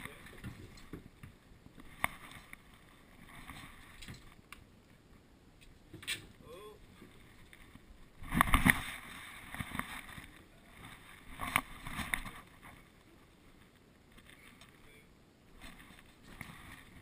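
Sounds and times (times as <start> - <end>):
muffled camera bumps and rubbing: 7.0 - 12.9.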